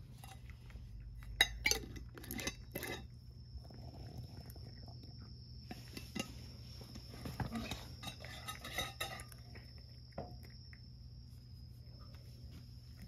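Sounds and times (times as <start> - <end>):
cat chewing crunchy food: 0.0 - 5.4.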